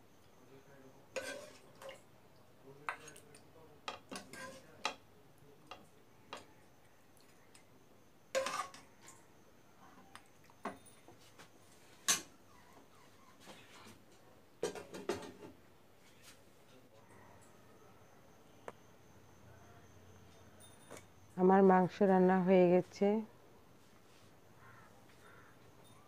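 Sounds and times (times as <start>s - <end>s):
metal spoon scraping a pan: 1.1s - 2.0s, 4.0s - 5.0s, 8.4s - 8.9s.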